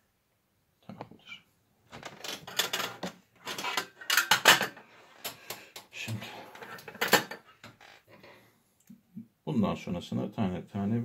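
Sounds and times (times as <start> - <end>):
small tools clattering: 2.0 - 4.9, 6.5 - 7.6.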